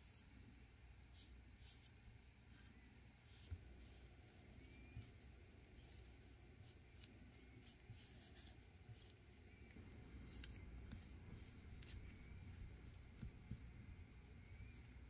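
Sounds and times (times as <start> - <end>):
paintbrush scratching strokes: 1.1 - 15.0.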